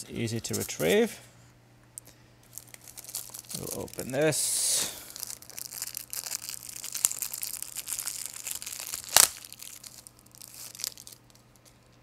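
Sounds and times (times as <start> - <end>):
plastic packaging crinkling and tearing: 2.5 - 12.0.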